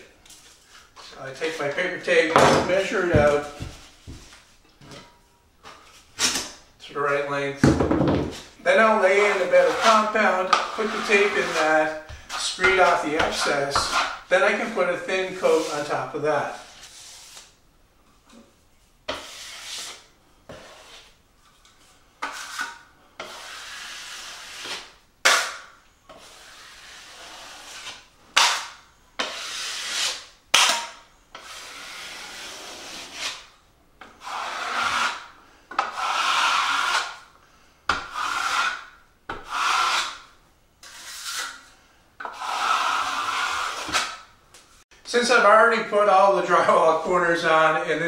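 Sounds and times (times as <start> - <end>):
taping knife scraping compound: 8.7 - 17.6, 19.1 - 21.2, 22.2 - 37.3, 37.9 - 44.3.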